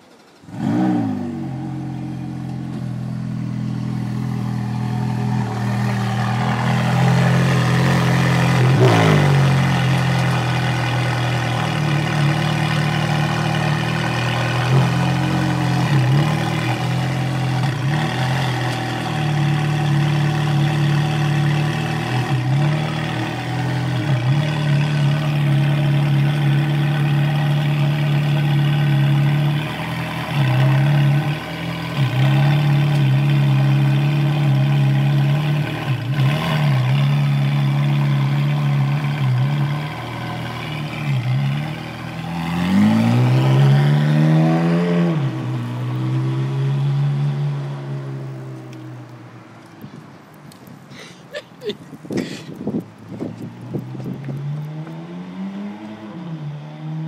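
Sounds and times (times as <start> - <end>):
car engine idling: 0.0 - 43.0
engine revving: 0.4 - 48.8, 53.6 - 57.0.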